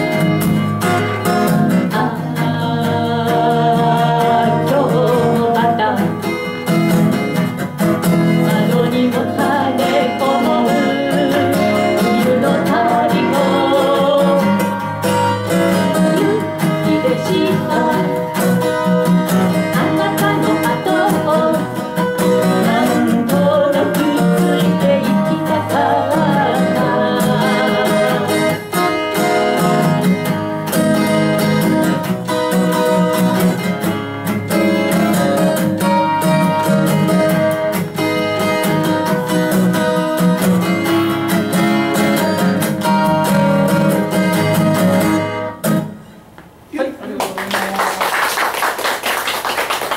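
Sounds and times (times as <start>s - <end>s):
acoustic guitars playing folk: 0.0s - 47.2s
person singing: 1.6s - 6.3s, 8.3s - 14.8s, 15.7s - 18.5s, 19.3s - 29.8s.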